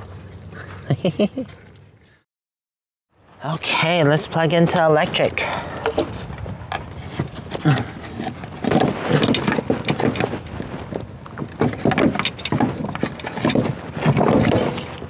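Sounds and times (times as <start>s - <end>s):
heavy cable dragging: 4.7s - 15.0s.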